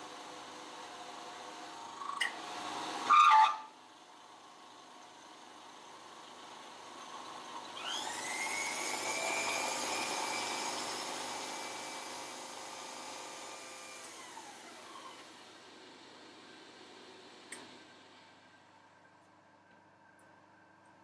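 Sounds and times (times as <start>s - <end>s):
milling cutter whine on metal: 5.4s - 15.6s.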